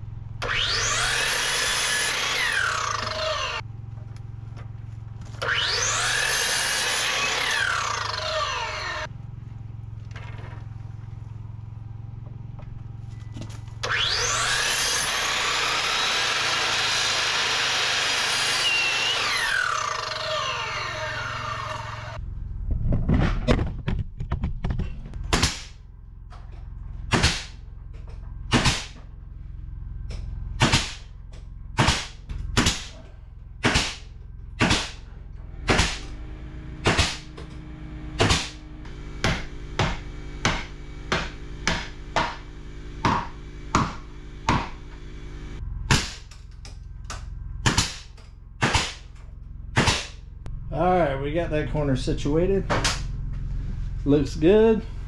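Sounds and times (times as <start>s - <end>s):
miter saw cutting wood: 0.4s - 3.6s, 5.2s - 9.1s, 13.8s - 22.2s, 33.6s - 46.3s
nail gun firing: 25.3s - 25.8s, 27.1s - 27.6s, 28.5s - 29.0s, 30.6s - 31.0s, 31.8s - 32.9s, 33.6s - 35.0s, 35.7s - 36.1s, 36.8s - 37.3s, 38.2s - 38.6s, 45.9s - 46.3s, 47.6s - 49.1s, 49.8s - 50.2s.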